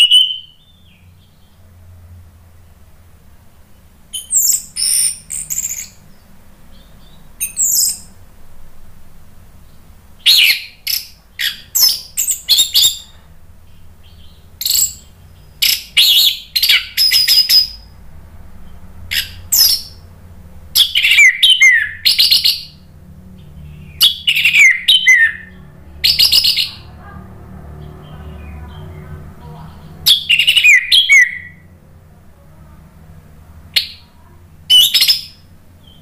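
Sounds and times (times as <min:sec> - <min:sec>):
faint low hum: 0:00.0 - 0:36.0.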